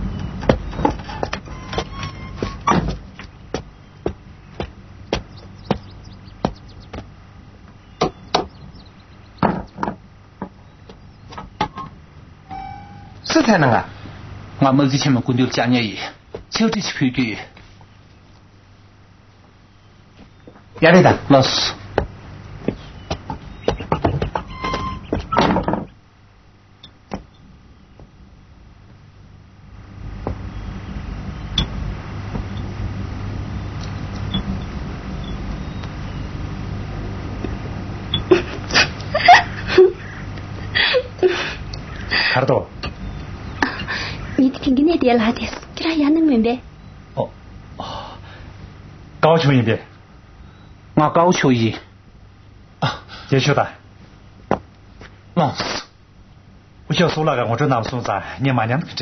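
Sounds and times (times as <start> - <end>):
low hum: 0.0 - 52.9
sharp knocks on wood: 2.7 - 7.1, 8.0 - 8.5, 9.4 - 11.8, 54.5 - 54.7.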